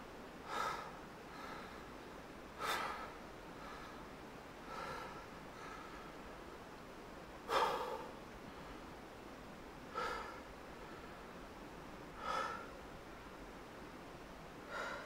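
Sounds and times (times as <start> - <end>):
heavy gasps: 14.7 - 15.0.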